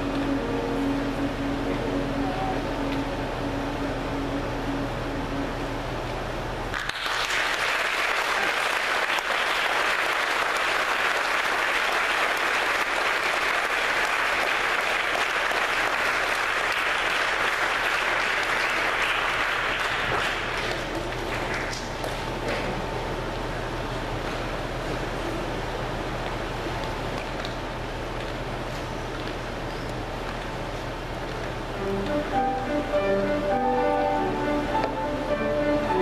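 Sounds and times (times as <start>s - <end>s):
audience applauding: 6.7s - 22.2s.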